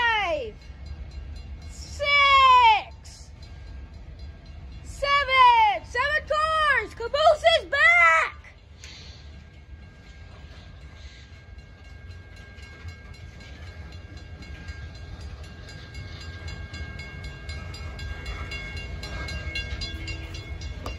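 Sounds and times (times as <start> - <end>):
train wheels rumbling on rails: 0.0 - 20.9
high-pitched crossing bell ringing: 9.4 - 20.9.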